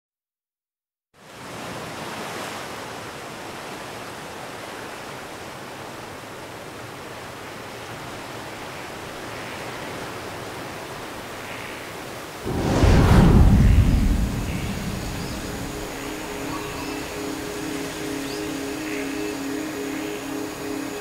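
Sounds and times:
steady rushing noise: 12.4 - 21.0.

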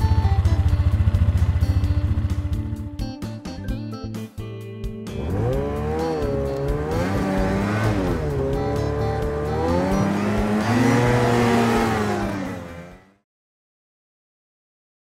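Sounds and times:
vehicle engine revving: 5.2 - 13.2.

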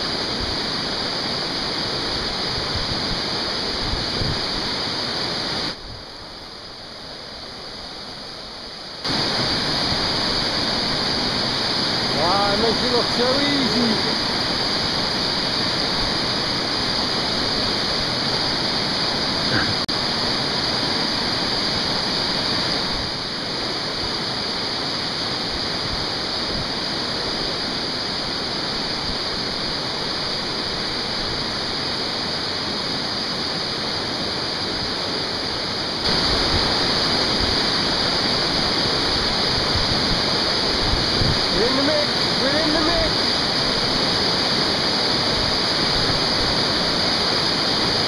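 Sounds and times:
river rapids rushing: 0.0 - 48.0.

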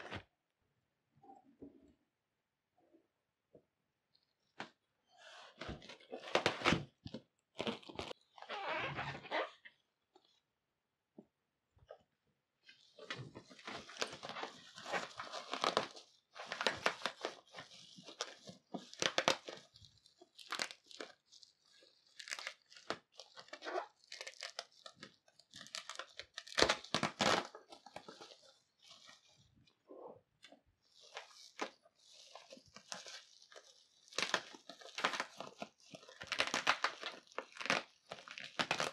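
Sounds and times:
bubble wrap crinkling: 5.0 - 8.6, 12.6 - 38.9
tearing: 13.0 - 29.3, 30.9 - 38.9.

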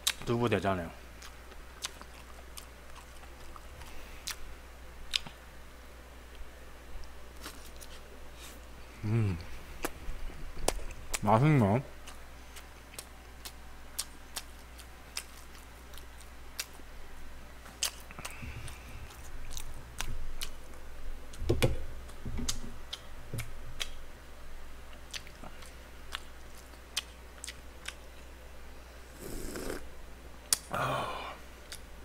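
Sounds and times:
close chewing: 1.2 - 4.4, 12.0 - 16.8, 17.6 - 20.8, 24.9 - 28.3.

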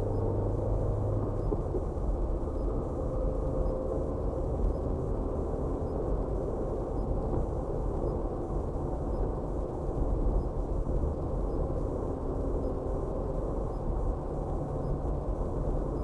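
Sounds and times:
road and engine rumble in car: 0.0 - 16.0.

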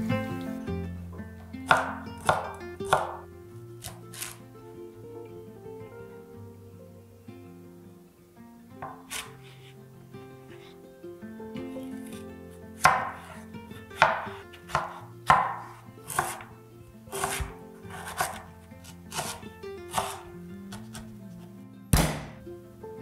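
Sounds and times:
knife chopping on wooden board: 1.7 - 3.2, 8.8 - 9.6, 12.8 - 13.4, 14.0 - 16.5, 17.1 - 18.5, 19.1 - 21.1, 22.0 - 22.4
knife scraping board: 3.8 - 4.4, 8.8 - 9.7, 14.0 - 16.5, 17.1 - 21.1.

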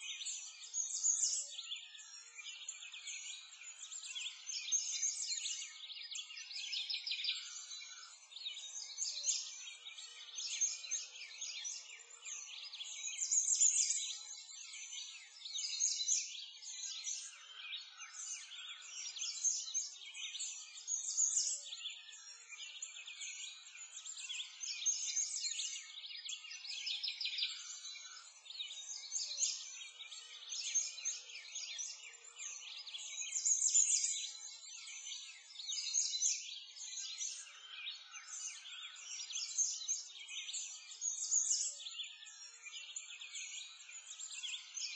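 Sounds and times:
songbirds chirping and trilling: 0.0 - 44.9.

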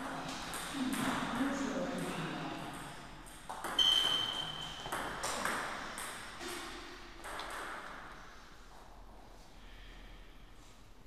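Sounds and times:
table tennis ball hits: 2.8 - 8.1.

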